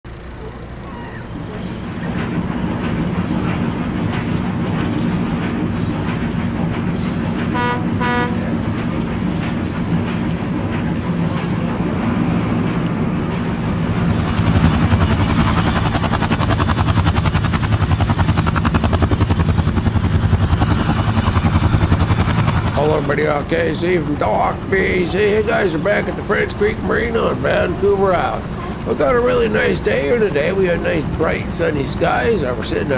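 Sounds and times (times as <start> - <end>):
diesel engine running: 0.1 - 32.9
helicopter rotor chopping: 0.1 - 32.9
turbine whine: 0.1 - 32.9
horn toots: 7.5 - 8.5.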